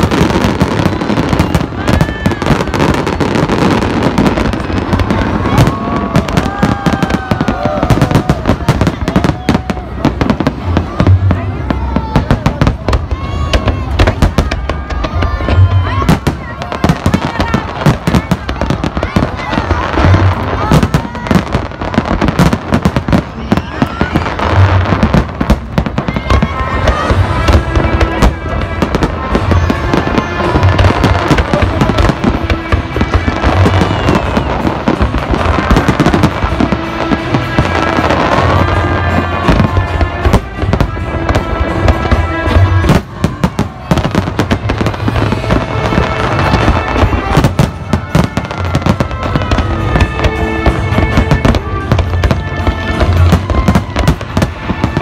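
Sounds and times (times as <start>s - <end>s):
fireworks bursting and crackling: 0.0s - 55.0s.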